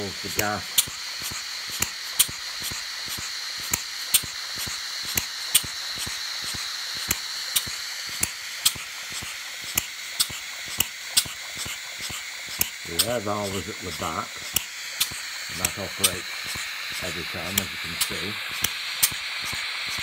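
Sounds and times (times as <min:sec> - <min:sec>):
steady gas hiss: 0:00.0 - 0:20.0
valve gear clatter: 0:00.0 - 0:20.0.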